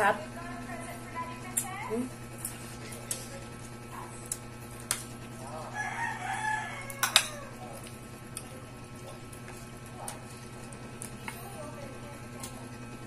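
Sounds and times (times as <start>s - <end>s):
rooster crowing: 5.6s - 7.7s.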